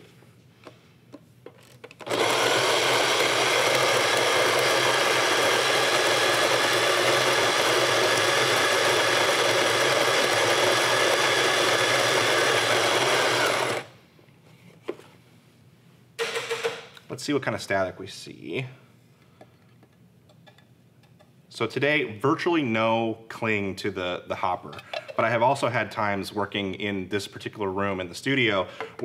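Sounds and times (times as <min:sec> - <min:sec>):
coffee grinder grinding beans: 0:01.9 - 0:13.9.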